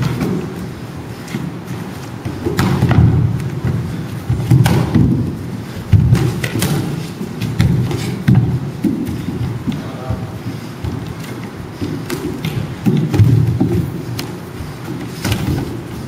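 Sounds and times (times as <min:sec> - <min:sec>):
feet stepping on wooden floor: 0:00.0 - 0:16.0
gloved punches and kicks landing: 0:02.3 - 0:09.2.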